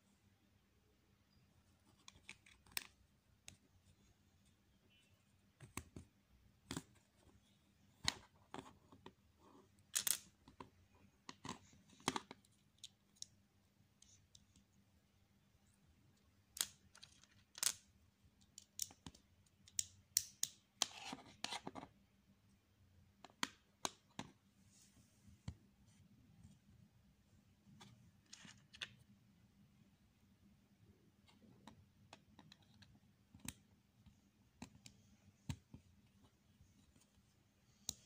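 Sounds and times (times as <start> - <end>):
plastic bricks clicking together: 16.6 - 20.6.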